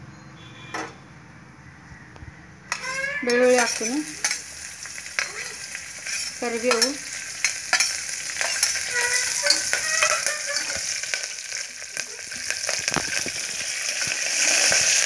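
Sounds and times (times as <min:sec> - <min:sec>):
spoon scraping pot: 0:02.7 - 0:04.5, 0:06.0 - 0:11.0
spices sizzling in hot oil: 0:02.7 - 0:15.0.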